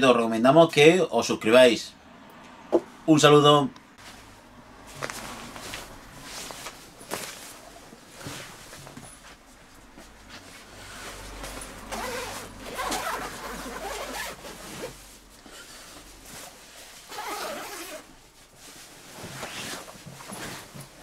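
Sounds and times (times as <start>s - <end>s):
nylon fabric rustling: 4.0s - 21.0s
sleeping bag zipper rasping: 11.9s - 15.0s, 17.0s - 18.1s.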